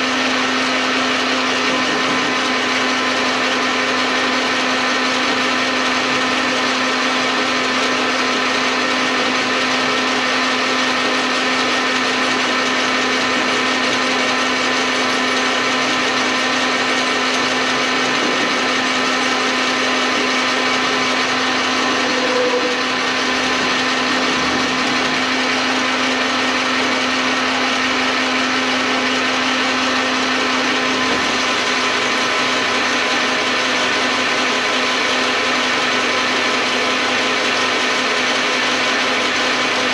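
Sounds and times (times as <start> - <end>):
metal lathe running: 0.0 - 39.9
short squeal: 21.7 - 23.1.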